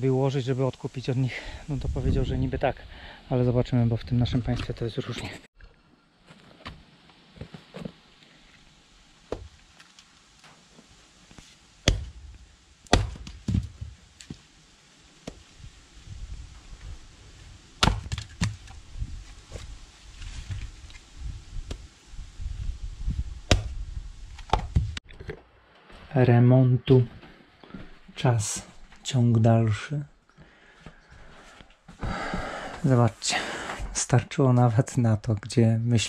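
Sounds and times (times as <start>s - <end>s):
firewood knocking together: 12.9s - 14.4s, 17.8s - 18.7s.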